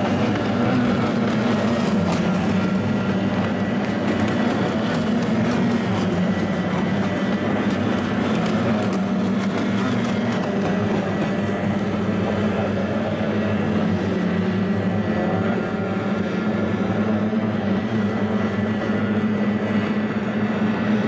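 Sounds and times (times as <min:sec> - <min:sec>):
outboard engines buzzing drone: 0:00.0 - 0:21.0.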